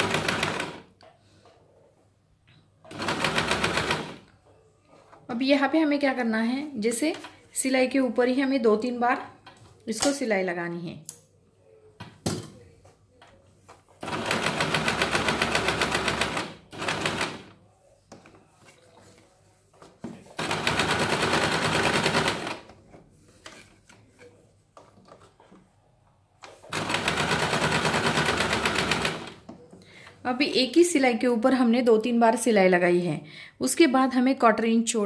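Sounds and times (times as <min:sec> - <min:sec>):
electric sewing machine running: 0:00.0 - 0:00.8, 0:14.0 - 0:17.5, 0:20.4 - 0:22.6, 0:26.7 - 0:29.4.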